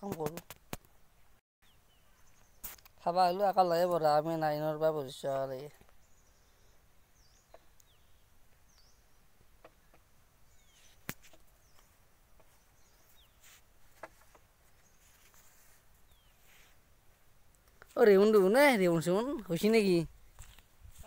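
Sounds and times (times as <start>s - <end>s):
small bird chirps: 5.6s - 13.6s.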